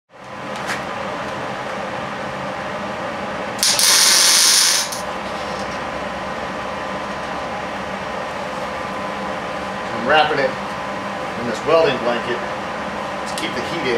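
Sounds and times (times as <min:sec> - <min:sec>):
low shop hum: 0:00.1 - 0:13.9
welding arc sizzling: 0:03.6 - 0:05.6.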